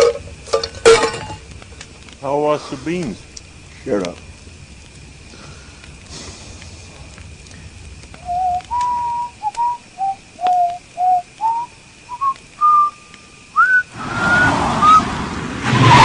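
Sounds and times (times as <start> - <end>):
person whistling a slow tune: 8.2 - 15.0.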